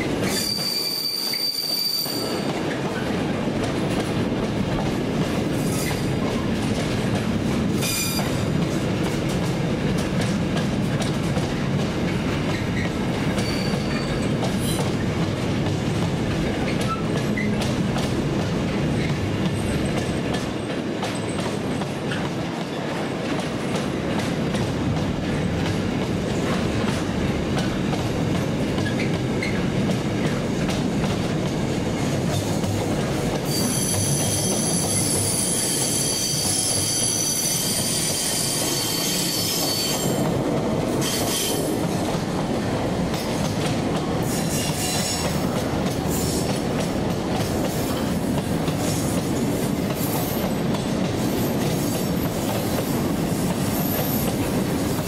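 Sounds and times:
train wheels rumbling on rails: 0:00.0 - 0:55.0
high-pitched wheel squeal: 0:00.3 - 0:02.4, 0:13.4 - 0:14.8, 0:33.5 - 0:40.2.

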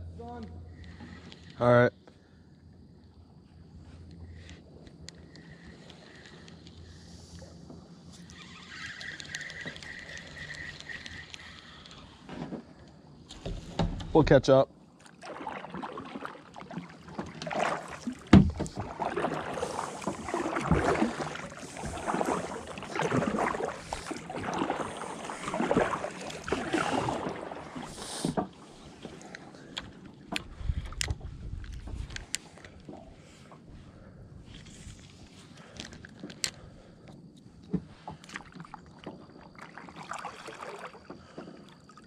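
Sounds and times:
faint clicks: 0:04.0 - 0:06.9, 0:08.1 - 0:12.2
kayak paddle splashing: 0:14.8 - 0:31.3, 0:37.8 - 0:42.0.

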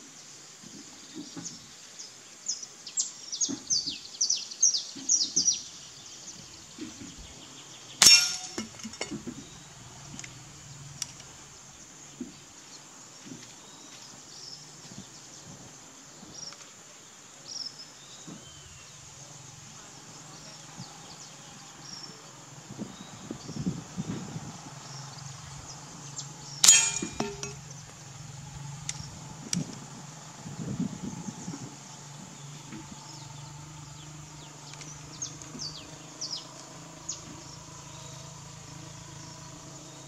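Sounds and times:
bird chirping: 0:00.0 - 0:16.7, 0:17.4 - 0:40.0
pellet clanging on metal target: 0:08.0 - 0:09.3, 0:26.6 - 0:27.7.

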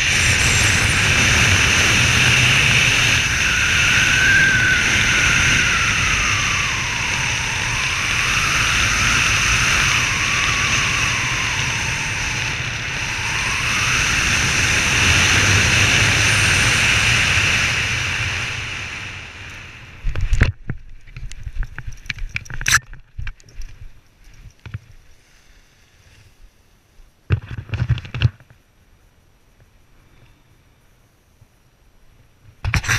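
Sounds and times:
wind rushing over microphone: 0:00.0 - 0:24.8.

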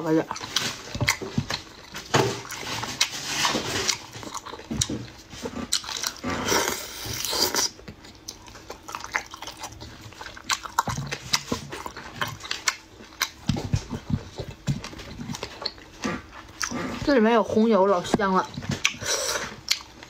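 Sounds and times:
lip smacks and wet chewing: 0:06.8 - 0:16.8, 0:18.5 - 0:20.0.

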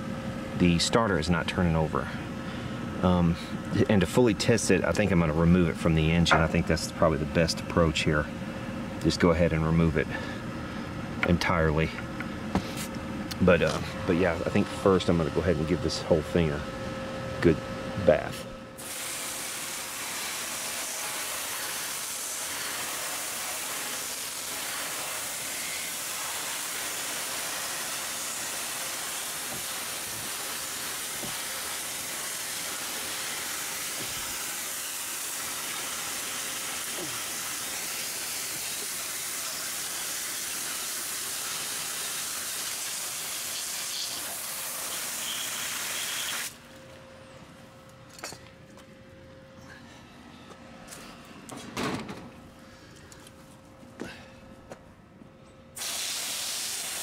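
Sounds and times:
pressure washer spraying water: 0:18.8 - 0:46.6, 0:55.8 - 0:57.0.

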